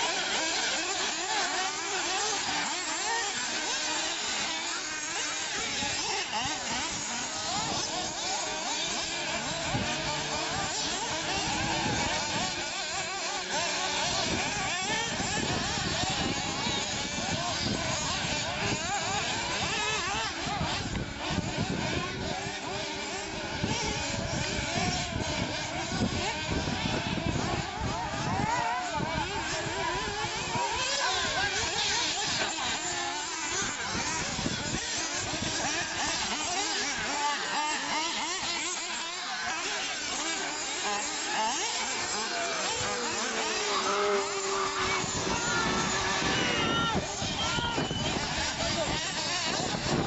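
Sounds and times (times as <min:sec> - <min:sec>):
rc buggy engines buzzing: 0:00.0 - 0:50.0.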